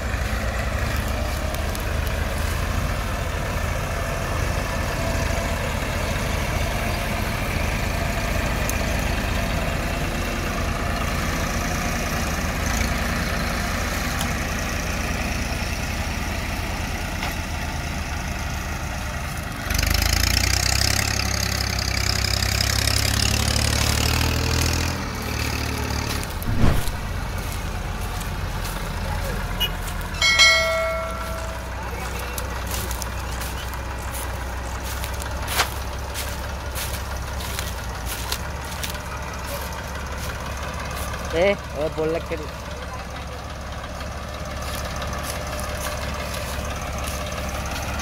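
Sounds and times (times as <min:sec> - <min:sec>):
tractor engines running: 0:00.0 - 0:48.0
sharp knock: 0:26.5 - 0:27.1.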